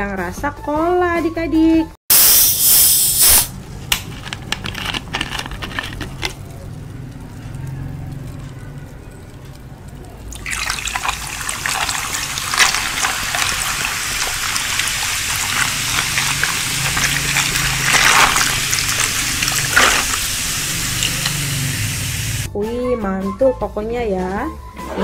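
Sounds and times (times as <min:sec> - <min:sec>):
cola fizzing over ice: 0:10.2 - 0:22.5.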